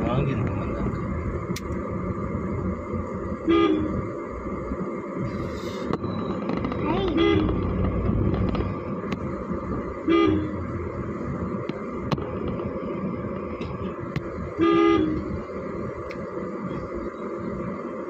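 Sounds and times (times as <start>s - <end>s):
car road and engine noise: 0.0s - 18.0s
vehicle horn toots: 3.5s - 4.0s, 7.1s - 7.6s, 10.0s - 10.6s, 14.6s - 15.3s.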